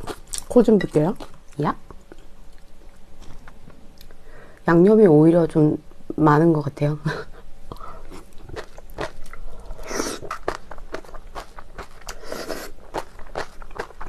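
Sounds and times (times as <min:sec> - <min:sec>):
wet chewing with mouth clicks: 0:07.7 - 0:14.0.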